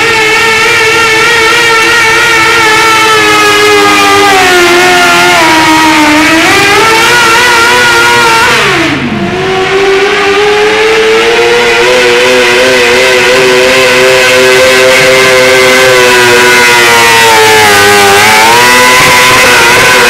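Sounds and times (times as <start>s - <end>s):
tractor engine at full throttle: 0.0s - 20.0s
tractor engine at high revs: 0.0s - 20.0s.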